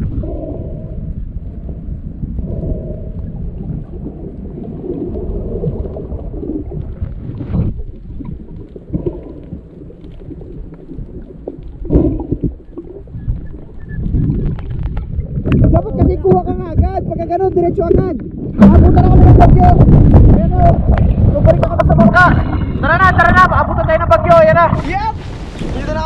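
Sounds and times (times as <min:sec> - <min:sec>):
underwater rumble and gurgle: 0:00.0 - 0:26.0
underwater clicks: 0:03.6 - 0:22.8
underwater knocks: 0:11.8 - 0:17.0, 0:17.8 - 0:22.8.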